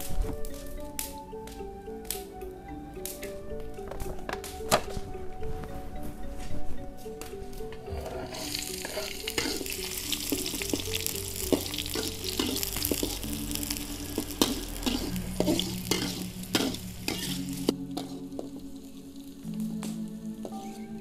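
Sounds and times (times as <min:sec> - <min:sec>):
metal spatula scraping wok: 0:07.8 - 0:13.3, 0:14.2 - 0:18.4
food sizzling in hot oil: 0:08.2 - 0:19.5.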